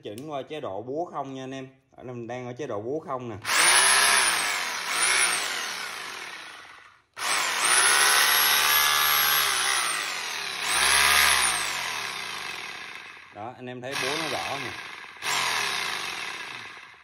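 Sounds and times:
rotary hammer motor whining: 0:03.5 - 0:17.0.

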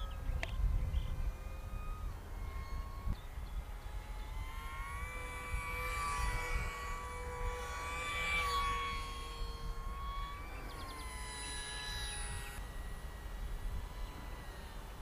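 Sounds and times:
model plane motor whining: 0:00.0 - 0:15.0.

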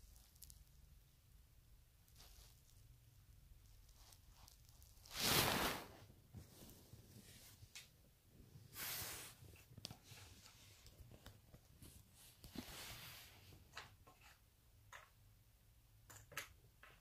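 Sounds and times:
soft fabric rustles: 0:02.0 - 0:14.4.

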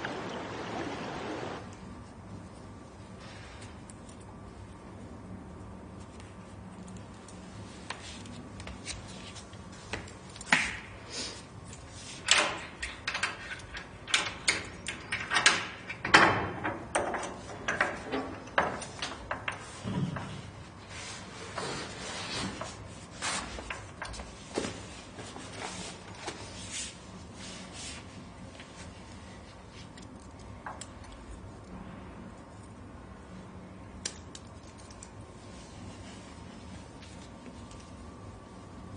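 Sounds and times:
locker clicking and rattling: 0:12.2 - 0:19.8.

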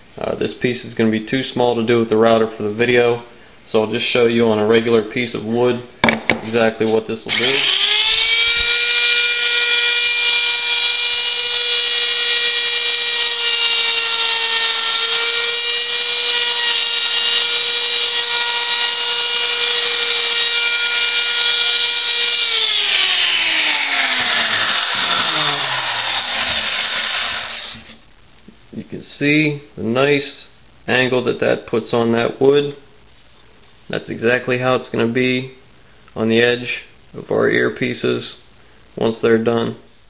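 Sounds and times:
wood router whining: 0:07.3 - 0:28.0.

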